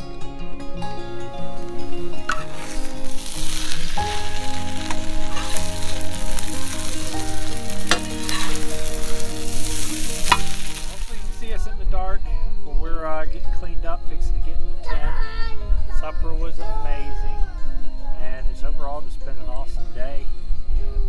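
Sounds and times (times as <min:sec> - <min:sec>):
soft background music: 0:00.0 - 0:21.0
food frying and sizzling: 0:00.8 - 0:11.7.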